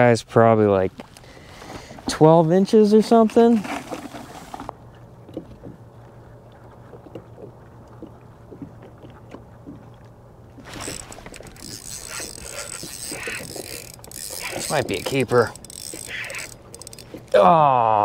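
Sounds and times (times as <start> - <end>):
low steady hum: 0.0 - 18.0
clicking and rattling: 10.7 - 17.4.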